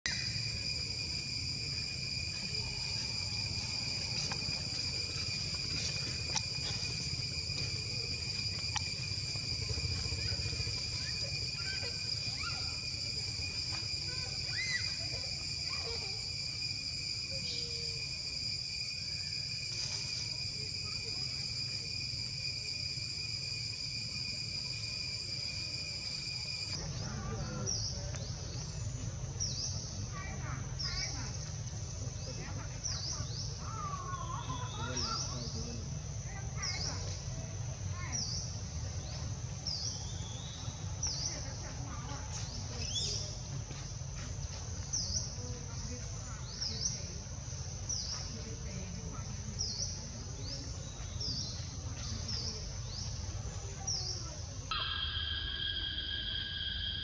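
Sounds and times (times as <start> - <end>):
insects droning: 0.1 - 57.0
short high insect chirps: 53.8 - 57.0.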